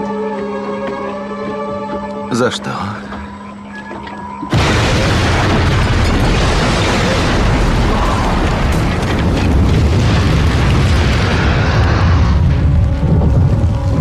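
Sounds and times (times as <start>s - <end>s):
explosion rumble with deep bass: 4.5s - 14.0s.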